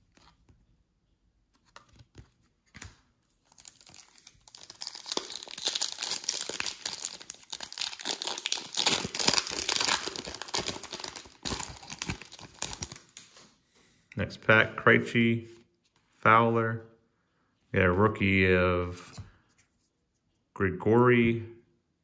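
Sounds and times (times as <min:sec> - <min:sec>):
foil pack crinkling and tearing: 0:03.4 - 0:13.2.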